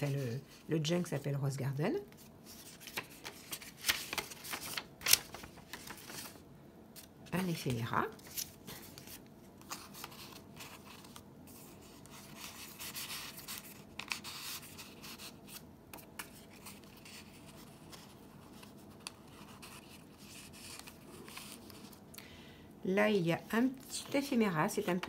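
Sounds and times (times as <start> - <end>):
paper cards rustling and sliding: 2.1 - 22.0.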